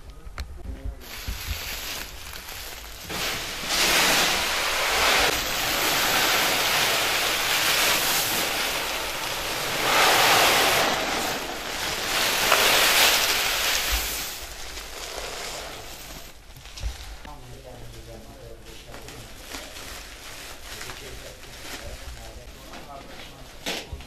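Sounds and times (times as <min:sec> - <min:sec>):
grain pouring into hopper: 0:01.0 - 0:16.4
sack rustling: 0:01.0 - 0:16.4.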